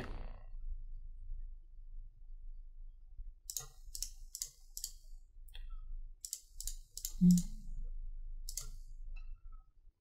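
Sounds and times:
computer mouse clicking: 3.5s - 7.6s, 8.4s - 8.9s.

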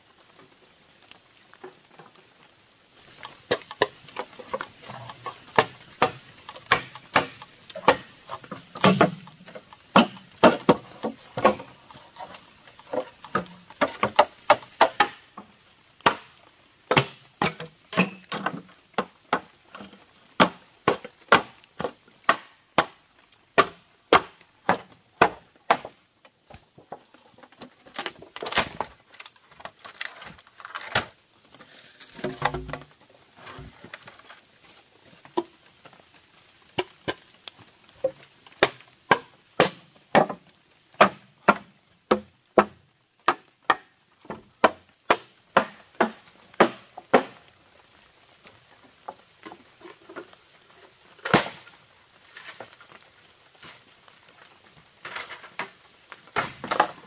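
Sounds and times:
wood crunching and splintering: 1.0s - 23.0s, 23.6s - 48.0s, 48.6s - 57.0s
chopping strikes on wood: 4.9s - 11.7s, 13.3s - 15.2s, 16.0s - 16.3s, 16.9s - 19.5s, 20.4s - 23.0s, 23.6s - 26.0s, 38.6s - 40.4s, 41.0s - 47.4s.

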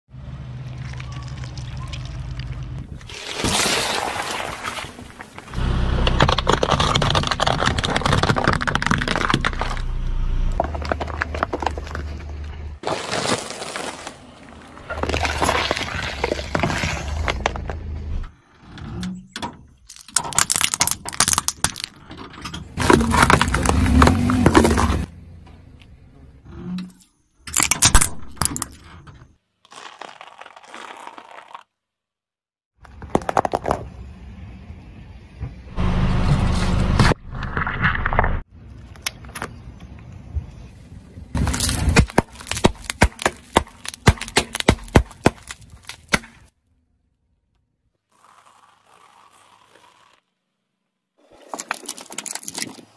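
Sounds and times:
tyre crushing plastic toys: 0.8s - 9.9s, 10.6s - 17.8s, 19.9s - 22.1s, 22.8s - 25.1s, 29.6s - 31.7s, 32.8s - 33.9s, 41.4s - 46.5s, 51.2s - 52.9s
chalk crunching under tyre: 10.6s - 17.9s, 22.8s - 25.1s, 29.6s - 31.7s, 41.4s - 46.5s, 48.0s - 50.6s.

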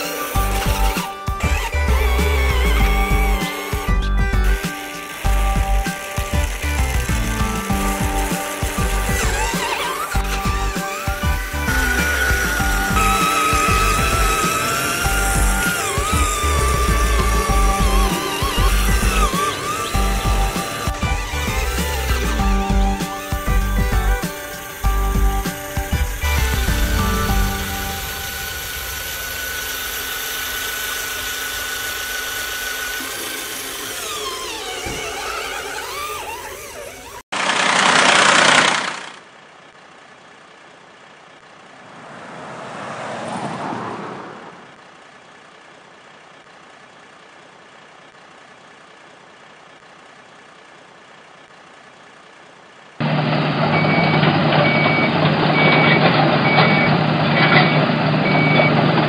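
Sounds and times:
steady held tones: 0.0s - 37.2s
heavy truck engine running: 0.0s - 42.4s, 44.6s - 59.0s
reversing alarm beeping: 53.6s - 58.9s.

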